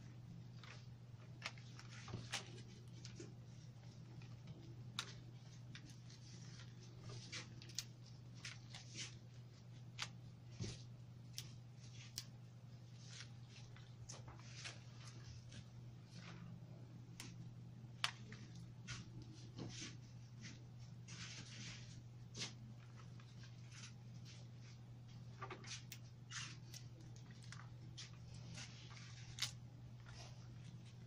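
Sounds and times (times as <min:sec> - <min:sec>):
steady low hum: 0:00.0 - 0:31.0
rose stems rustling and clicking: 0:21.1 - 0:31.0.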